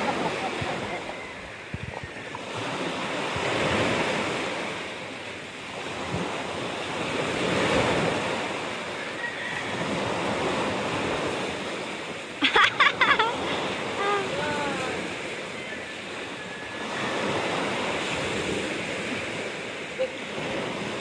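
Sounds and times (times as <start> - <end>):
wind buffeting microphone: 0.0 - 8.9
waves washing up beach: 0.0 - 21.0.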